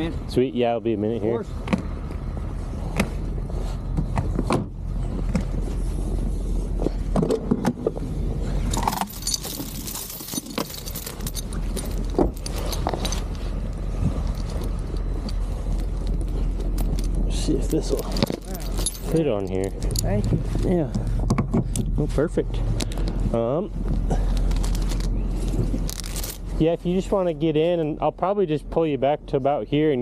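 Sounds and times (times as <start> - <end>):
steady low rumble: 0.0 - 30.0
steel chain clinking and rattling: 8.4 - 21.0, 24.1 - 26.6.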